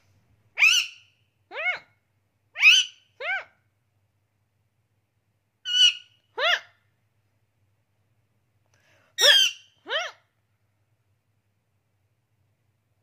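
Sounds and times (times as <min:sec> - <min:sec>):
parakeet calls: 0:00.6 - 0:01.9, 0:02.6 - 0:03.5, 0:05.6 - 0:06.8, 0:09.2 - 0:10.2.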